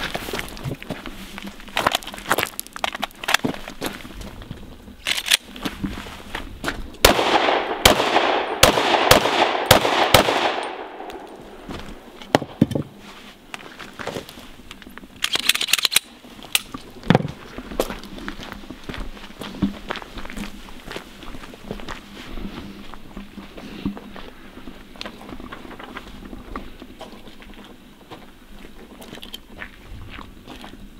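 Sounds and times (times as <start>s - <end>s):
pistol shots echoing: 7.0s - 12.6s.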